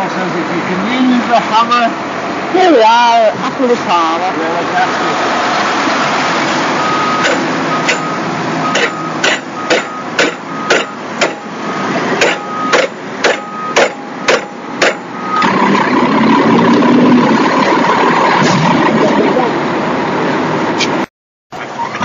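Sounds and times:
hammer striking metal: 7.2s - 8.1s, 8.7s - 11.6s, 12.2s - 15.2s.

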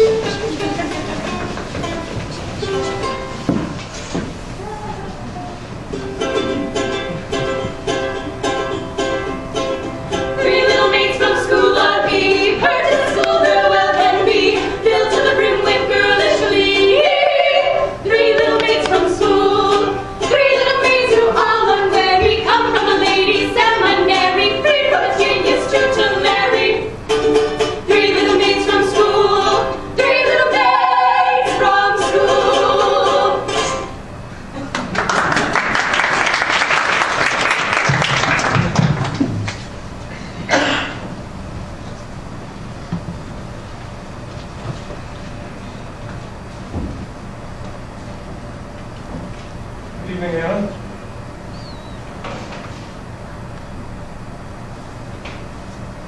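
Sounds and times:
voices singing: 10.3s - 27.0s, 27.8s - 33.8s
strummed string accompaniment: 18.1s - 30.7s
applause: 34.7s - 39.6s.

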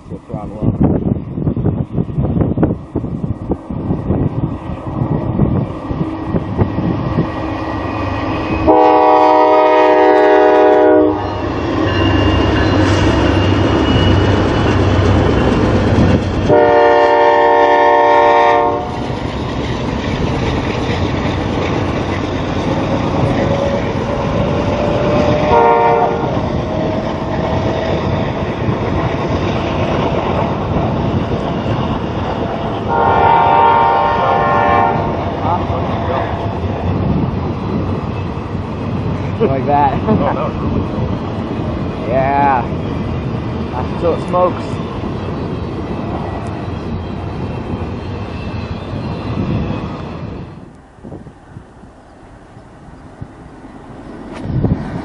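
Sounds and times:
train wheels on rails: 0.0s - 55.0s
diesel engines rumbling: 1.7s - 55.0s
locomotive air horn blasts: 8.7s - 11.2s, 16.5s - 19.0s, 25.4s - 26.4s, 32.9s - 35.1s.

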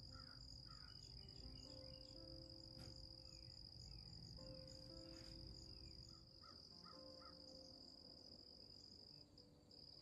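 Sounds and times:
crickets trilling: 0.0s - 10.0s.

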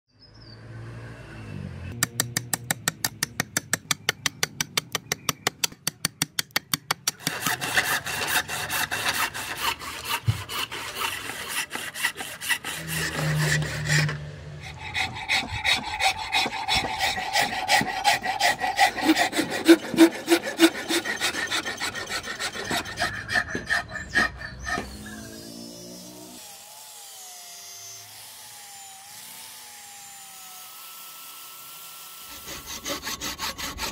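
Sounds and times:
rasping on wood: 2.1s - 25.5s, 32.3s - 33.9s
hand saw cutting wood: 6.5s - 33.9s.

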